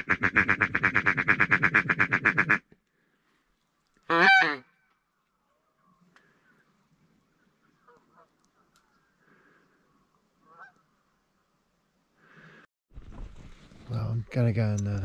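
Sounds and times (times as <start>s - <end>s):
waterfowl honking: 4.1s - 4.7s, 7.8s - 8.4s, 10.5s - 10.8s.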